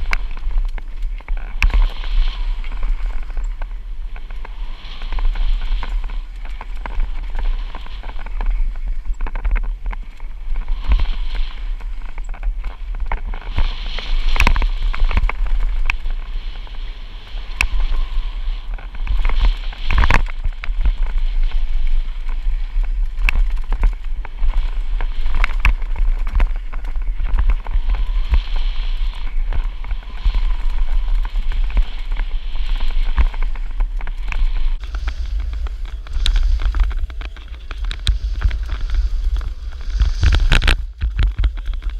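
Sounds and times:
bike tyres rolling over dirt: 0.0 - 41.9
wind rumbling on microphone: 0.0 - 41.9
bike knocks and clatters: 32.9 - 41.9.

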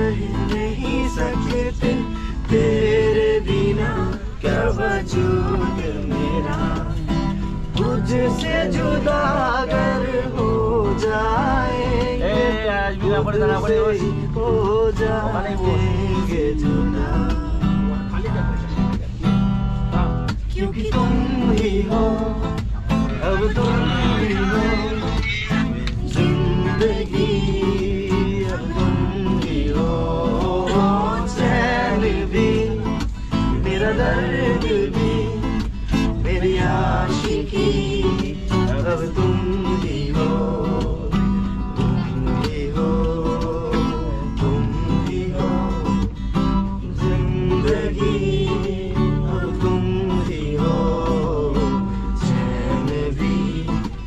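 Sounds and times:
man singing: 0.0 - 18.8, 19.9 - 54.0
acoustic guitar strumming: 0.0 - 54.0
steady low rumble: 0.0 - 54.0.

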